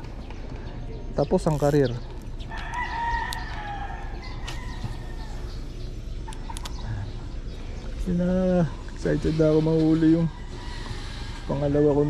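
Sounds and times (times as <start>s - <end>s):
low background rumble: 1.9s - 11.5s
rooster crowing: 2.5s - 5.5s.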